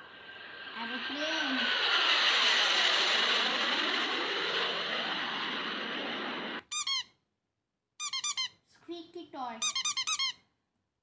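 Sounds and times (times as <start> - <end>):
aeroplane engine rushing: 0.0 - 6.6
squeaky toy squeaks: 6.7 - 7.2, 8.0 - 8.6, 9.6 - 10.5.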